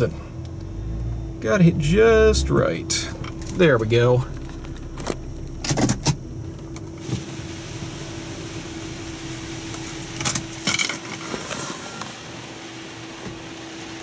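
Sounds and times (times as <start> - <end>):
low hum: 0.0 - 11.6
car wash spray hissing: 6.9 - 14.0.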